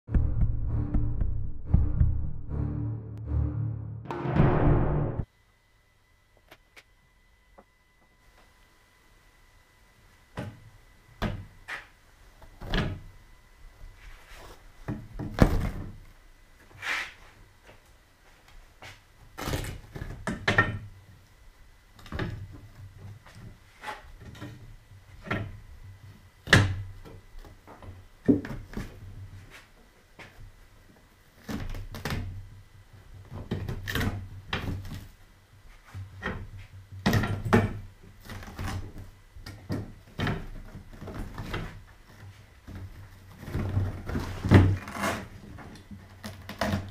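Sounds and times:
foam padding thumps and rustles: 14.8s - 16.0s.

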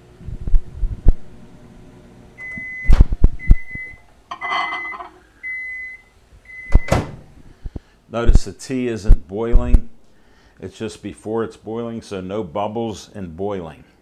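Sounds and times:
microwave oven humming: 0.0s - 7.9s
microwave beeping: 2.4s - 7.2s
glass mug clattering: 4.3s - 5.2s
microwave door clunks: 6.7s - 7.2s.

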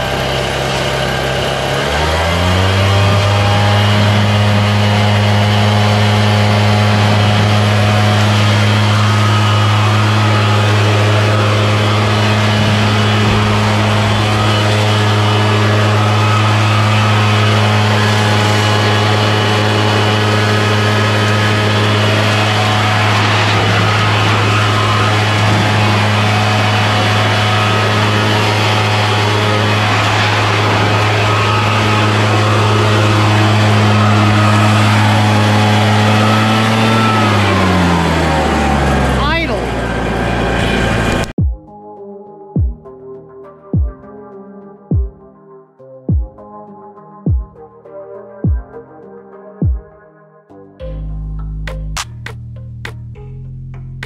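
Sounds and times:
leaf blower engine running: 0.0s - 41.4s.

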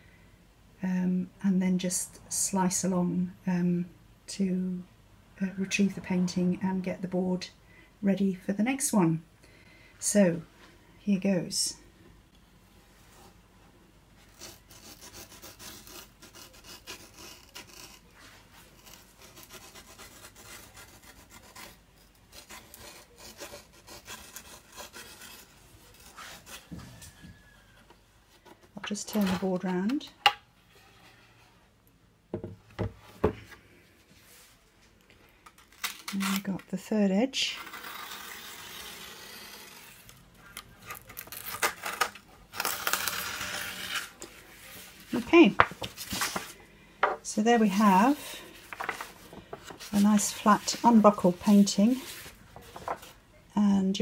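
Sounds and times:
knife slicing paper tape: 40.9s - 44.2s
stiff paper rustling: 43.9s - 46.6s, 47.6s - 53.2s.

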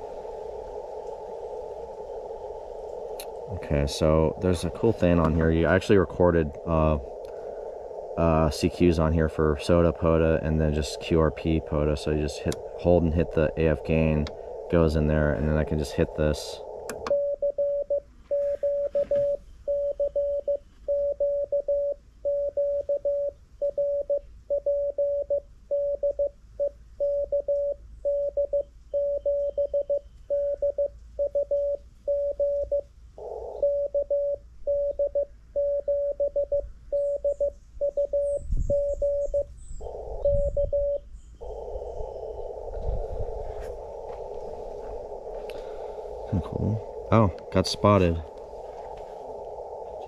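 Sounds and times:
radio receiver hiss: 0.0s - 17.3s, 39.8s - 50.0s
morse code tone: 17.0s - 42.4s.

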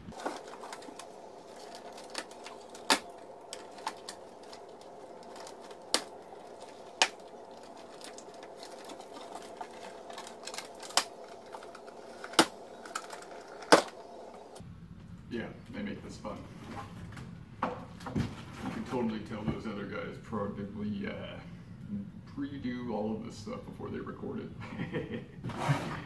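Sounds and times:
cardboard packaging handled: 0.0s - 14.6s
faint hum: 0.0s - 26.0s
sharp clicks and snaps: 0.1s - 14.4s.

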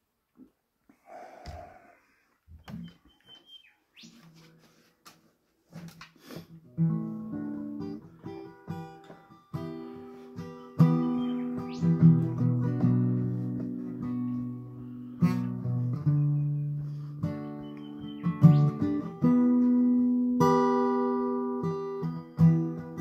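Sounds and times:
acoustic guitar strumming: 6.5s - 23.0s.

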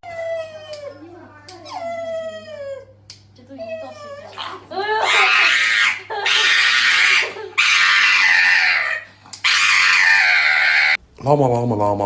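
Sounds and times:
small dog shrieking: 3.6s - 11.0s.

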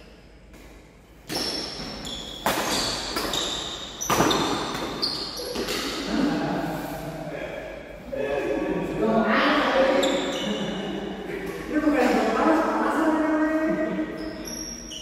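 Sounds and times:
racket hitting shuttlecock: 0.5s - 6.1s
short high squeaks: 14.1s - 15.0s.

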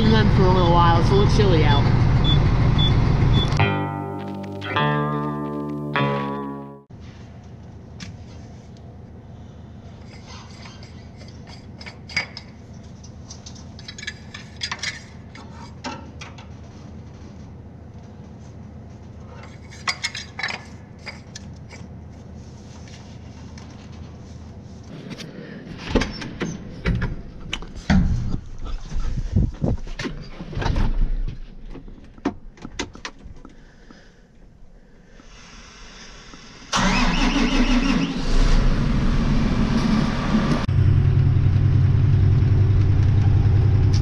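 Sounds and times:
heavy knocks and bumps: 25.8s - 33.4s
steady low rumble: 38.5s - 44.0s.

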